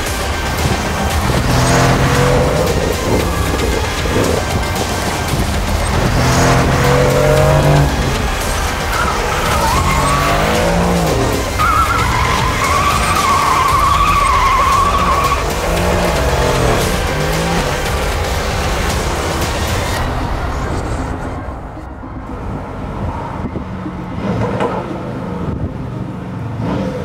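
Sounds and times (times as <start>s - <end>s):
tyres squealing: 0.0s - 21.6s
car engine revving: 0.0s - 27.0s.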